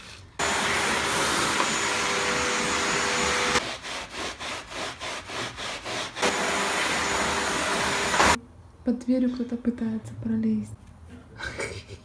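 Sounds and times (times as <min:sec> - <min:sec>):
vacuum cleaner running on carpet: 0:00.4 - 0:03.6, 0:06.3 - 0:08.4
sponge scrubbing carpet: 0:02.9 - 0:06.2.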